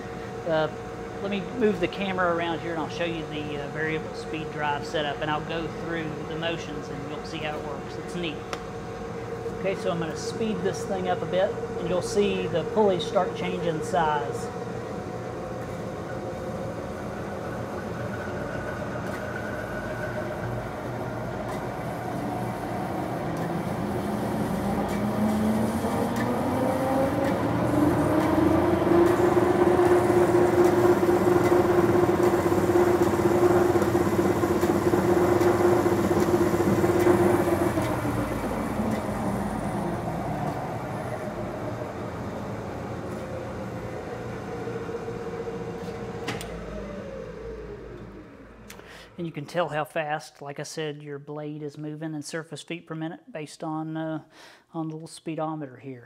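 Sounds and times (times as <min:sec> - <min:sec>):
band saw running: 0:16.3 - 0:48.7.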